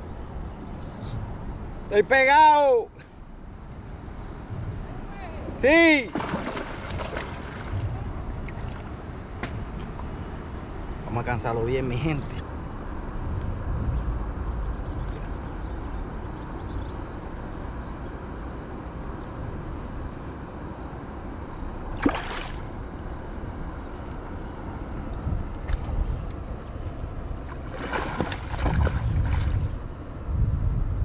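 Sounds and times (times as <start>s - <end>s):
water sloshing around kayak: 5.4s - 10.1s, 21.9s - 23.4s, 25.7s - 29.9s
fish splashing: 6.1s - 7.7s, 22.0s - 22.9s, 26.2s - 29.6s.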